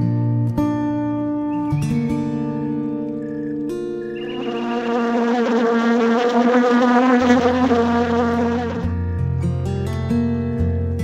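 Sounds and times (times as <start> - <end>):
acoustic guitar music: 0.0 - 11.0
bee buzzing: 4.0 - 9.0.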